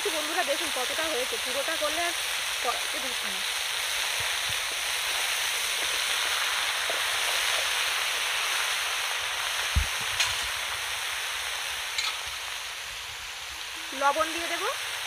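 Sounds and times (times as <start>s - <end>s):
vegetables sizzling in hot oil: 0.0s - 15.0s
dull thump: 9.7s - 10.1s.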